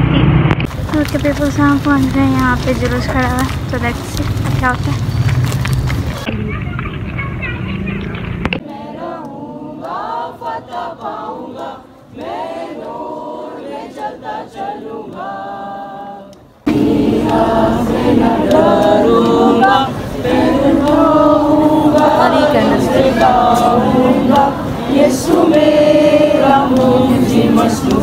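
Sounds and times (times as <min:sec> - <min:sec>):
crowd singing a hymn: 0:08.5 - 0:28.0.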